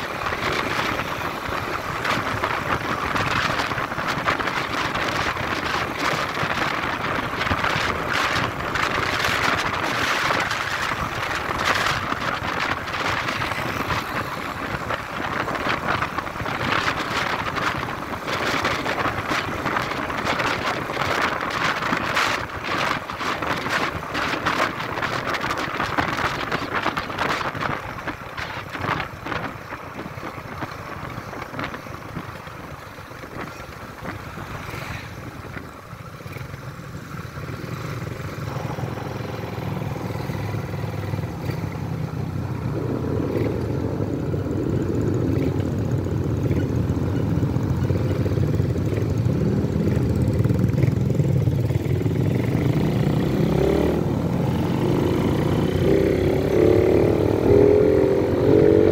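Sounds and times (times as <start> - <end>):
wind buffeting microphone: 0.0 - 36.4
motorcycle engine: 0.0 - 58.9
road noise: 0.0 - 58.9.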